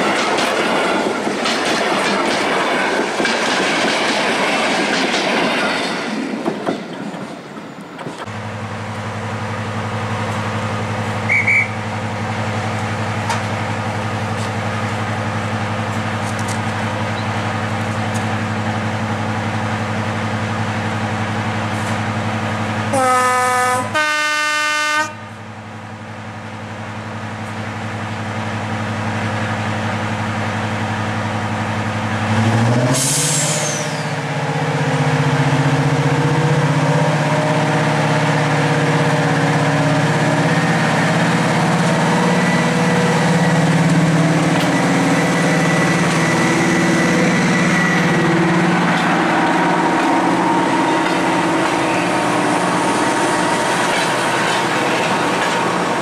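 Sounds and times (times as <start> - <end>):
diesel locomotive engine running: 7.5 - 56.0
locomotive horn: 22.9 - 25.4.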